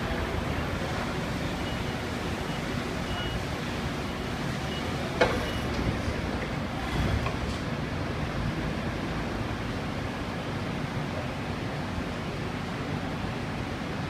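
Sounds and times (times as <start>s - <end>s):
hydraulics whirring: 0.0s - 10.8s
forklift running: 0.0s - 13.9s.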